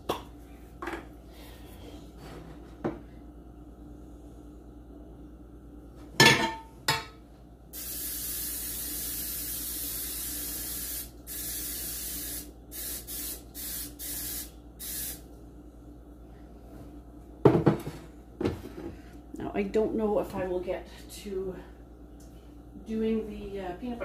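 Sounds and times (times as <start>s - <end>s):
aerosol spray hissing: 7.8s - 15.2s.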